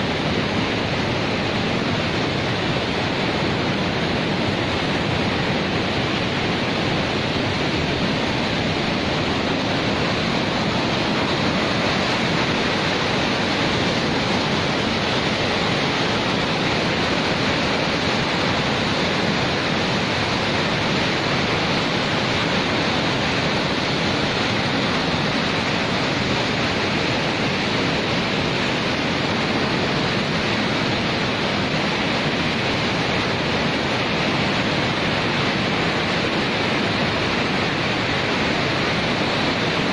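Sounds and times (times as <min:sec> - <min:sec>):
floodwater rushing: 0:00.0 - 0:39.9.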